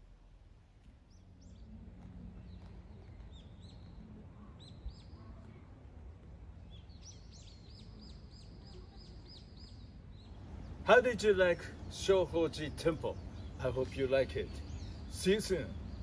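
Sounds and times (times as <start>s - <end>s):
small birds chirping: 0.9s - 16.0s.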